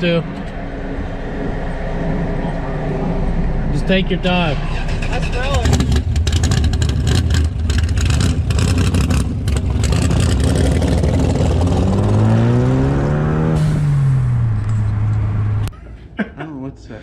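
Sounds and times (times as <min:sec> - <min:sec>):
car engine accelerating: 0:00.4 - 0:15.7.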